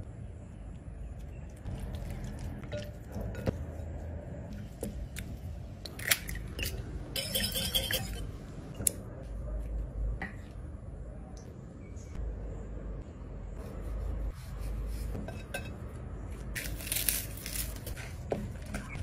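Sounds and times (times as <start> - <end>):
low steady rumble: 0.0 - 19.0
utensils tapping a bowl: 7.2 - 8.2.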